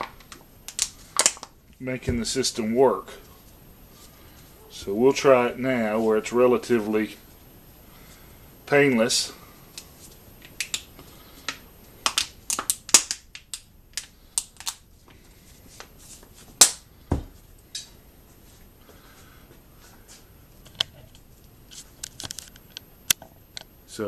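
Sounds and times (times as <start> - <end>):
rubber balloons snapping: 0.0 - 1.5, 11.5 - 14.8.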